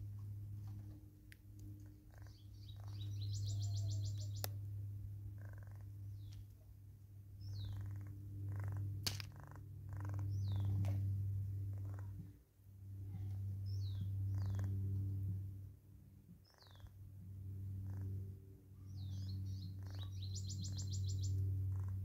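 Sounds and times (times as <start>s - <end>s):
steady low hum: 0.0s - 22.0s
bird trill: 2.1s - 4.5s, 16.4s - 16.9s, 18.9s - 21.9s.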